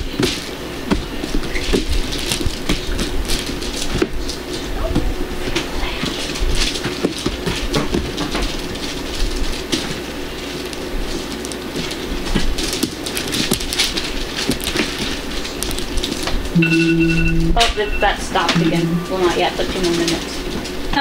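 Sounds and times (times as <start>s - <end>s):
slime squishing and crackling: 0.0s - 16.6s
faint steady hum: 0.0s - 21.0s.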